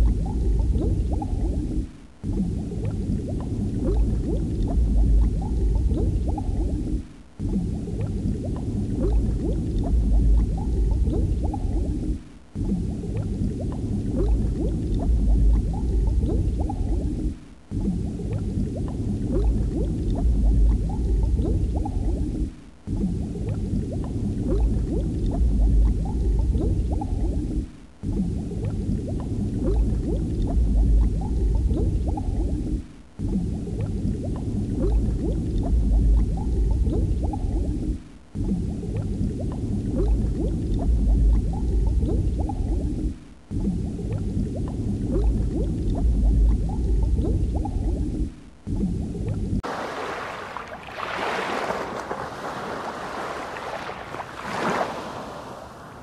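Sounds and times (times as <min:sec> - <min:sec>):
underwater bubbling and gurgling: 0:00.0 - 0:56.0
deep rumble: 0:03.1 - 0:06.9, 0:39.9 - 0:44.2, 0:45.0 - 0:49.4.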